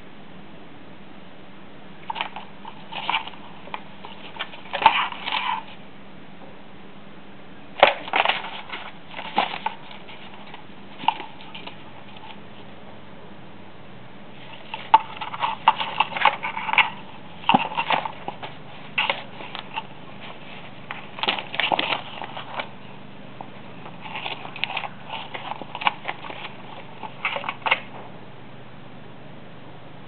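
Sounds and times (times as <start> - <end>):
kitten scratching in cardboard box: 2.0 - 5.8, 7.8 - 12.4, 14.3 - 28.0.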